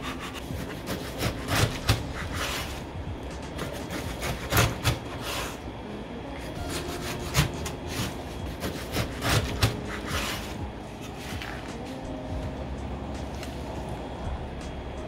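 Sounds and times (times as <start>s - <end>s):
knife slicing cabbage: 0.0s - 2.8s, 3.5s - 5.6s, 6.6s - 11.7s.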